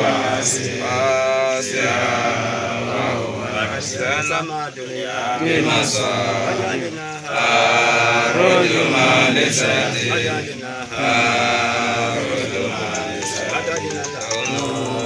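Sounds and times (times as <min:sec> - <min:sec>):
men chanting a prayer: 0:00.0 - 0:15.0.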